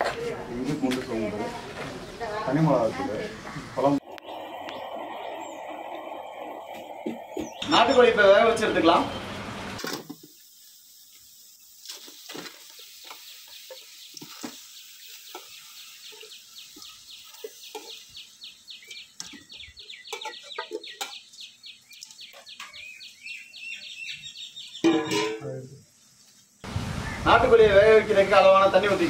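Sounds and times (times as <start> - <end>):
birds chirping: 1.9 - 9.8, 12.7 - 25.2, 26.6 - 28.6.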